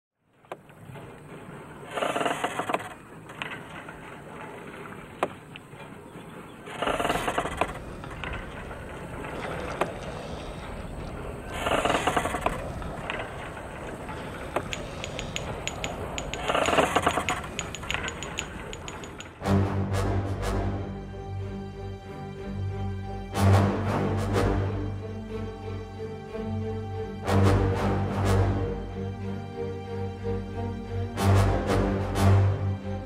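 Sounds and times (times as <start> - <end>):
pumping gear creaking: 0.5 - 19.4
sharp clicks: 9.5 - 19.4.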